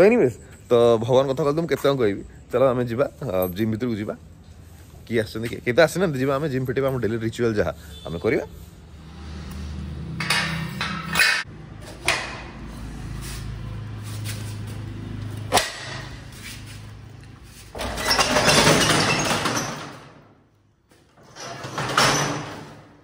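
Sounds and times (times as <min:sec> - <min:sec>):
metal gate rattling and scraping: 0:10.1 - 0:12.5, 0:17.5 - 0:20.3, 0:21.1 - 0:23.0.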